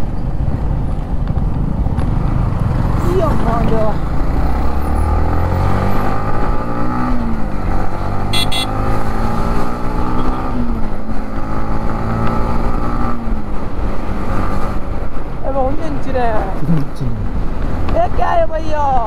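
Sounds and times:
motorcycle engine revving: 0:02.0 - 0:14.8.

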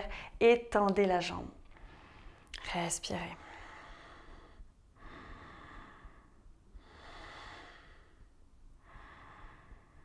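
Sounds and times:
person breathing slowly: 0:03.4 - 0:10.0.

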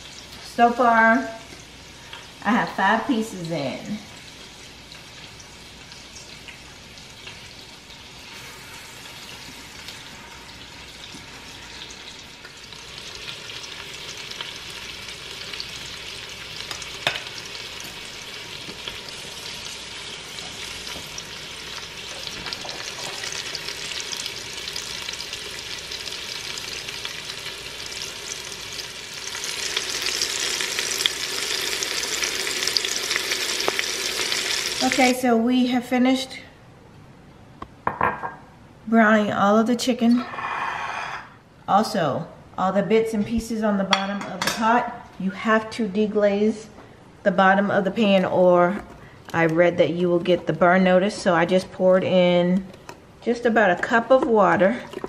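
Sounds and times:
chicken sizzling in butter: 0:01.2 - 0:35.2.

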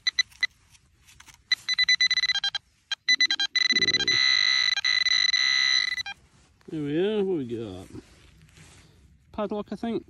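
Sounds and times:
metal detector pinpointer beeping: 0:00.0 - 0:00.6, 0:01.4 - 0:06.2.

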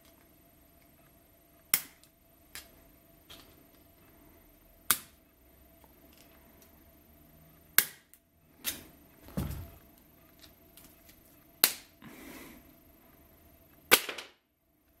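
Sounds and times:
dull knock: 0:09.3 - 0:09.8.

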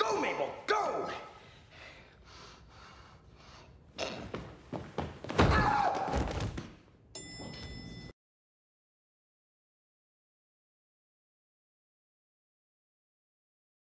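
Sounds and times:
bodies thudding against door: 0:04.7 - 0:06.7.

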